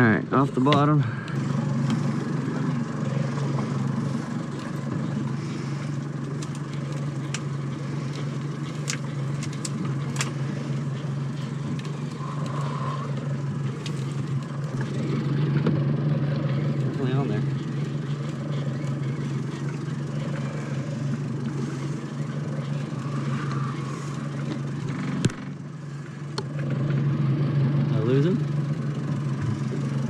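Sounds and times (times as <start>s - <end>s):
boat engine idling: 0.0s - 30.0s
water noise: 0.0s - 30.0s
wind: 0.0s - 30.0s.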